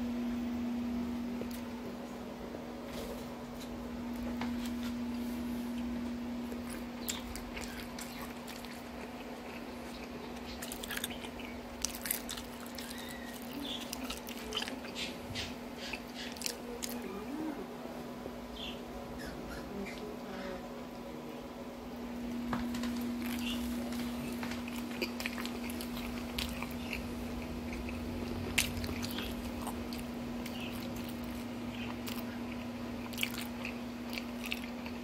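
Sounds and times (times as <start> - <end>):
steady low hum: 0.0 - 35.0
person chewing food: 3.6 - 17.3, 22.4 - 35.0.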